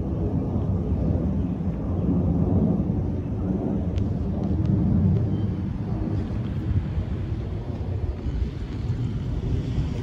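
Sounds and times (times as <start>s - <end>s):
jet airliner engine rumble: 0.0s - 10.0s.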